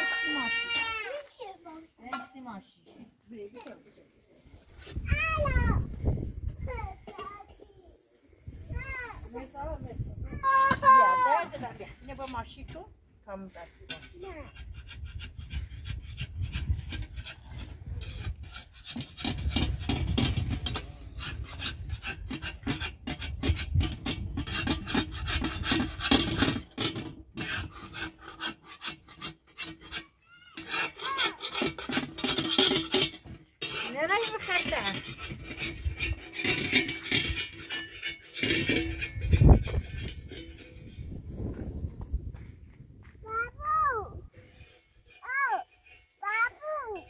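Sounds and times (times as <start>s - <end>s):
metal tool scraping on iron: 13.7s - 41.5s, 44.3s - 47.0s.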